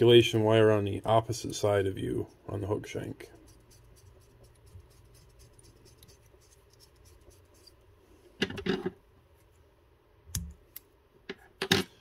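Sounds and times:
thread rubbing on hook: 3.2s - 7.8s.

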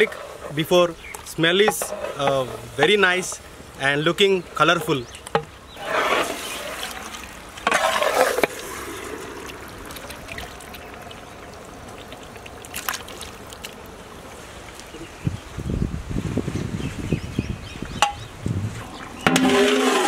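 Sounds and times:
metal ladle stirring: 5.8s - 11.2s, 19.2s - 20.0s
wet squelching: 5.8s - 15.0s.

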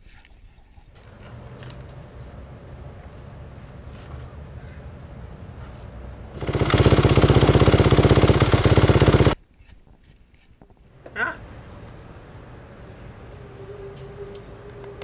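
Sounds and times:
dirt bike engine running: 6.3s - 9.4s.

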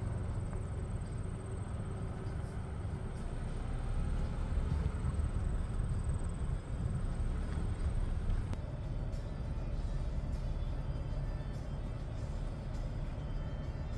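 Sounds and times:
garbage truck engine rumbling: 0.0s - 8.6s.

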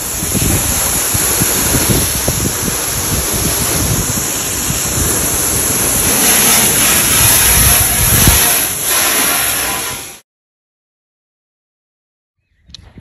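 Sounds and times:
hose spraying water on metal: 0.0s - 10.2s
wind buffeting microphone: 0.0s - 10.2s, 12.4s - 13.0s.

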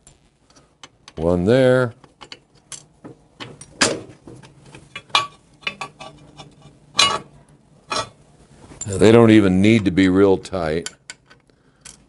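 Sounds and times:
metal bolts clinking: 1.9s - 6.2s, 7.0s - 7.3s.

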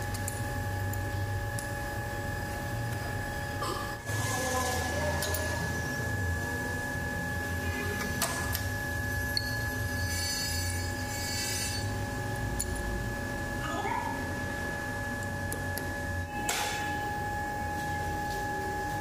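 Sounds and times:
metal lathe whining: 9.4s - 13.2s.

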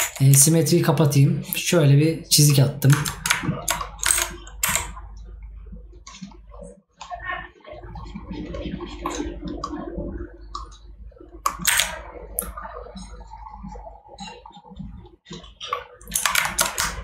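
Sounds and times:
low steady hum: 0.0s - 17.0s
mouse and keyboard clicks: 2.4s - 5.0s, 11.4s - 13.1s, 15.3s - 17.0s.

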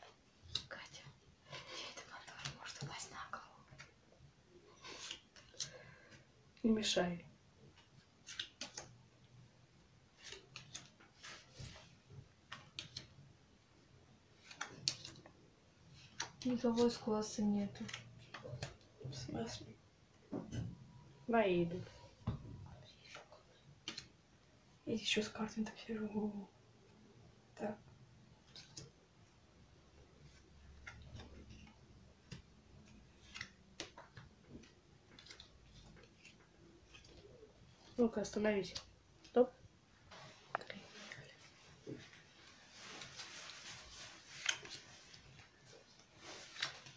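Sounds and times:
playing cards snapping and sliding: 8.2s - 8.9s, 10.2s - 11.8s, 12.5s - 13.1s, 14.4s - 15.2s, 23.8s - 24.1s, 30.8s - 34.3s, 35.1s - 37.3s, 44.2s - 44.8s, 46.4s - 46.9s.

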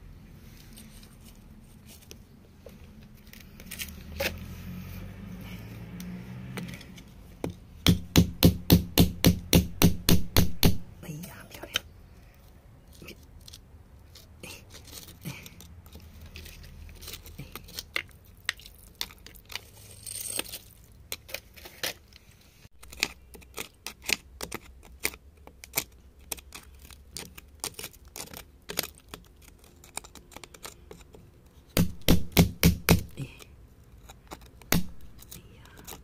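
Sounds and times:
metal chisel scraping clay: 19.5s - 21.9s, 33.1s - 36.0s.

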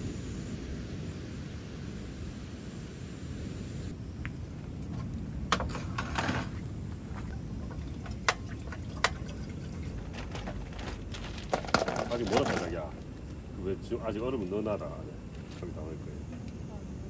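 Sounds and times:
low wind rumble: 0.0s - 17.0s
kitchenware and bottles clattering: 7.6s - 12.8s.

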